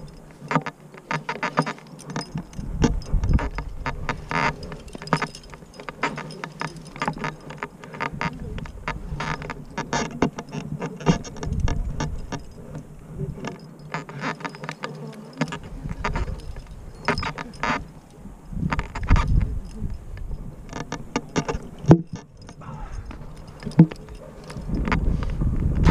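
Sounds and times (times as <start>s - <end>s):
metal climbing gear clinking: 0.0s - 25.9s
wind rumble on microphone: 2.3s - 5.8s, 8.1s - 13.6s, 15.6s - 25.9s.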